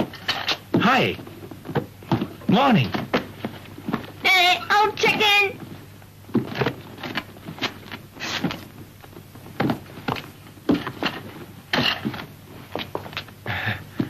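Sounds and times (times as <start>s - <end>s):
cartons scraping: 0.0s - 14.0s
cardboard cartons thudding: 9.4s - 14.0s.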